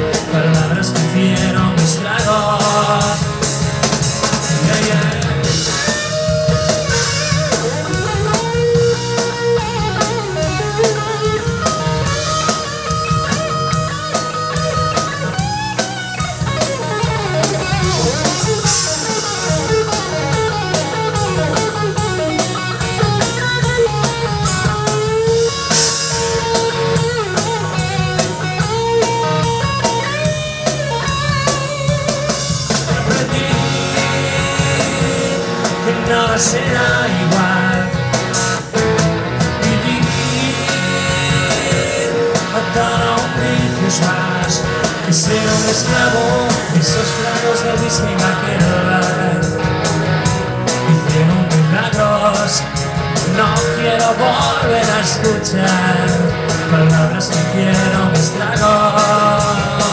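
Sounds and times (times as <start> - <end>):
bass guitar: 0.0 - 59.9
drum kit: 0.0 - 59.9
electric guitar lead melody: 0.0 - 59.9.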